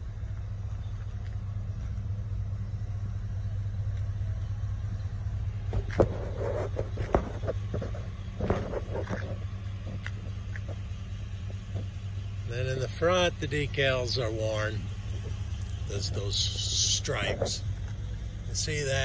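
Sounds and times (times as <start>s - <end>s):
vehicle engine idling: 0.0s - 19.0s
clicks and scuffs: 5.5s - 12.1s.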